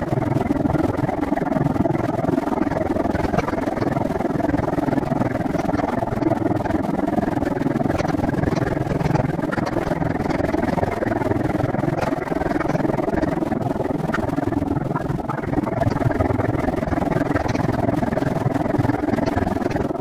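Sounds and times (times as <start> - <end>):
bicycle rolling rumble: 0.0 - 20.0
wind rush: 0.0 - 20.0
rattle clicks: 7.8 - 13.3, 14.1 - 19.9.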